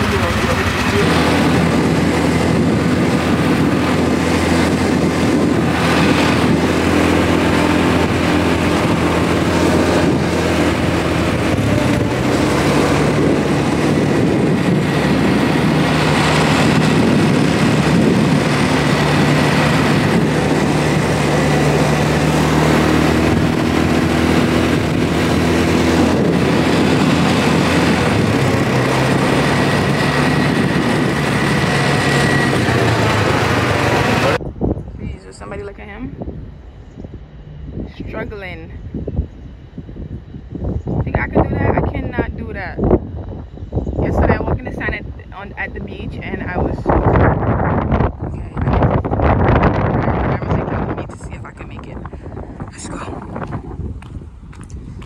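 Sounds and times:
atv engine running: 0:00.0 - 0:34.5
wind on microphone: 0:00.0 - 0:55.0.

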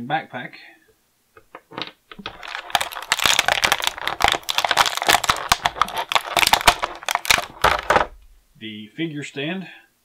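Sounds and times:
plastic blister tray crackling: 0:01.4 - 0:08.4.

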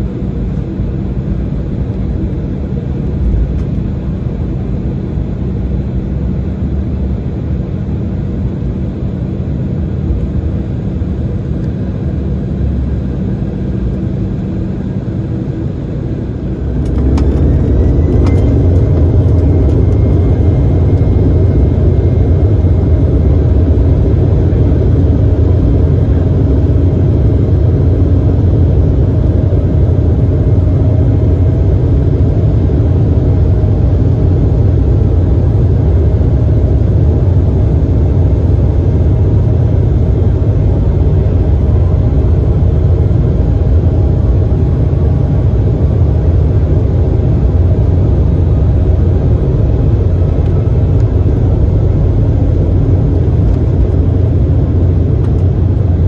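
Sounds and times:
jet engines spooling up: 0:10.2 - 0:37.0.

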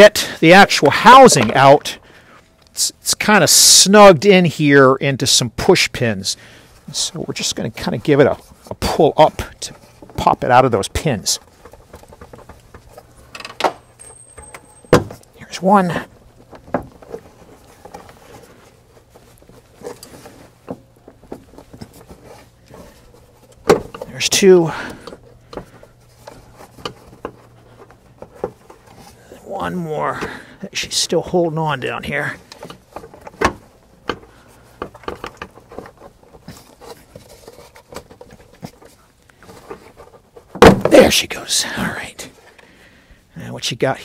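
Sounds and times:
plastic rubbing and handling: 0:06.7 - 0:13.3, 0:15.2 - 0:29.4, 0:30.9 - 0:41.1
plastic knocks and rattles: 0:16.4 - 0:18.1.

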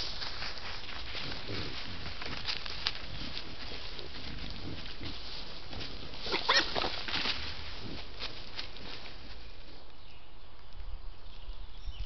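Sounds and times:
night forest background: 0:00.0 - 0:12.0
wild animal call: 0:06.2 - 0:07.0.

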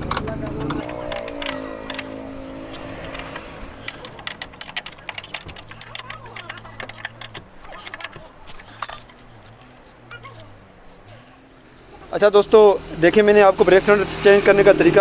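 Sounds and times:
spanner clicking and scraping: 0:00.0 - 0:09.8
low hum: 0:00.0 - 0:12.0
keys jangling: 0:03.1 - 0:09.8.

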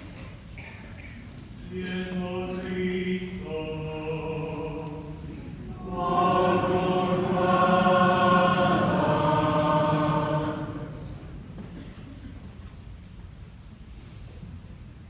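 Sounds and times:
choir singing liturgical chant: 0:01.4 - 0:11.6.

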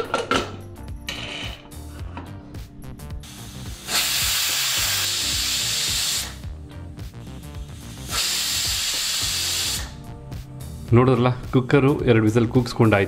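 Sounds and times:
pressure cooker steam whistle: 0:03.3 - 0:06.4, 0:07.4 - 0:10.0.

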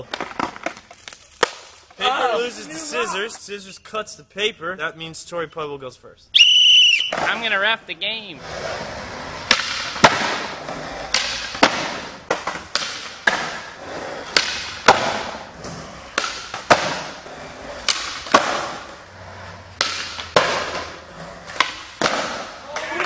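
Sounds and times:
skateboard cracks and slaps: 0:00.0 - 0:01.9, 0:09.5 - 0:13.7, 0:14.3 - 0:15.5, 0:16.1 - 0:17.2, 0:17.8 - 0:18.9, 0:19.8 - 0:23.0
skateboard wheels rolling on concrete: 0:00.0 - 0:03.5, 0:06.3 - 0:23.0.

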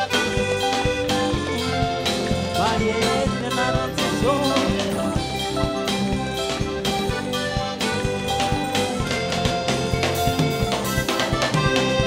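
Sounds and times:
band with drums and keyboard: 0:00.0 - 0:12.0
lead singer: 0:00.1 - 0:06.1
choir singing: 0:01.1 - 0:05.4.

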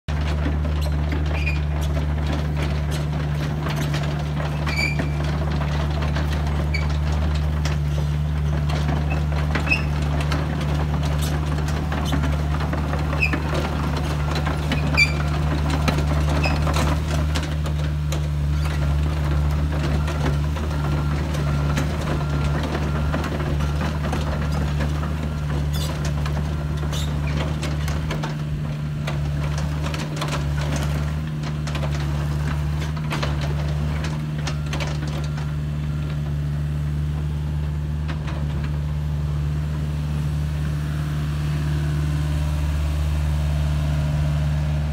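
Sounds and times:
excavator diesel engine running: 0:00.1 - 0:44.9
short high squeaks: 0:04.6 - 0:05.2, 0:09.1 - 0:10.0, 0:14.7 - 0:15.3.

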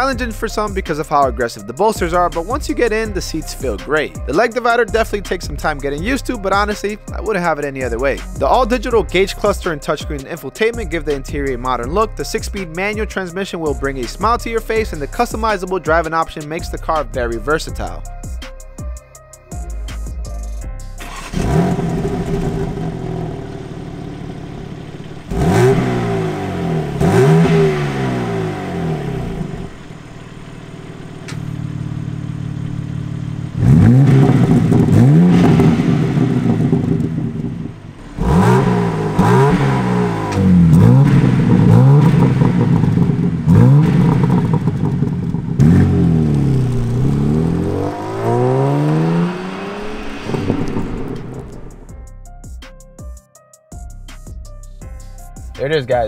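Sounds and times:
car engine idling and revving: 0:19.6 - 0:52.1.

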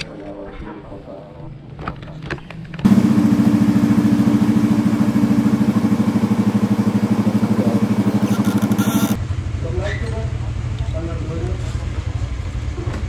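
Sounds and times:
motorcycle engine idling: 0:02.9 - 0:12.7.

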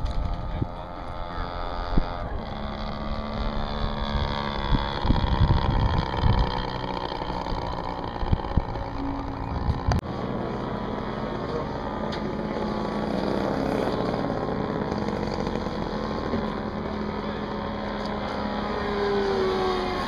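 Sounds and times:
wind rumble on microphone: 0:00.0 - 0:10.6
model airplane engine droning: 0:00.0 - 0:20.0.

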